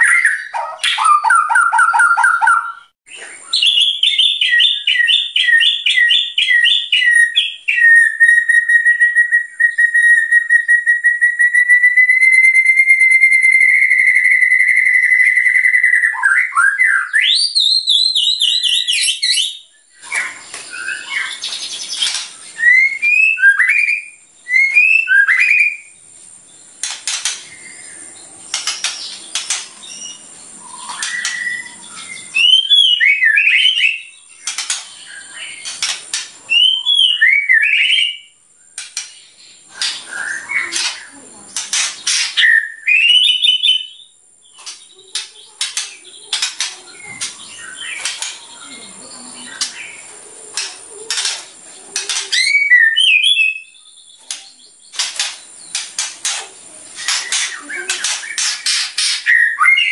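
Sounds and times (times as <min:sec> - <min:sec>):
songbird whistling song: 0:00.0 - 0:59.9
sharp bird clicking notes: 0:26.7 - 0:31.8, 0:34.4 - 0:36.4, 0:38.7 - 0:39.2, 0:44.6 - 0:48.5, 0:49.6 - 0:53.3, 0:54.2 - 0:59.6.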